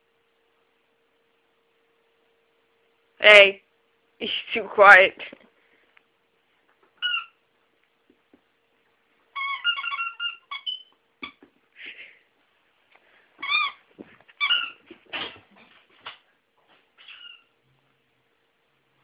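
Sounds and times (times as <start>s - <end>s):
squeaky dog toy squeaking: 7.0s - 7.4s, 9.3s - 11.5s, 13.4s - 13.8s, 14.4s - 15.4s, 17.0s - 17.5s.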